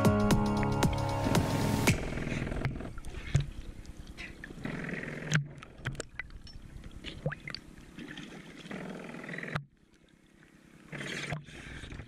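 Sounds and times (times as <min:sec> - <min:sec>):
water sloshing against boat hull: 0:02.2 - 0:12.0.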